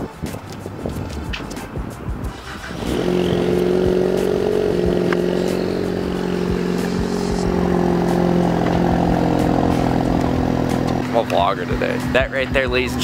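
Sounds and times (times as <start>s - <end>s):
car engine idling: 0.6s - 13.0s.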